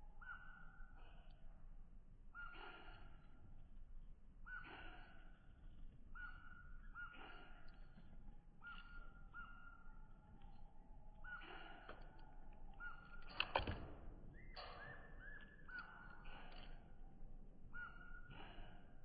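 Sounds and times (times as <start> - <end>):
faint harsh bird calls: 0.0 - 19.0.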